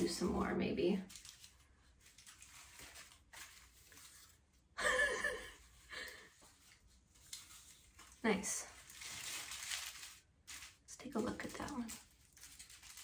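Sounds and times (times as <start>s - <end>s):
woman's voice: 0.0s - 1.1s, 8.2s - 8.8s, 10.9s - 12.0s
foil rustling: 0.0s - 13.0s.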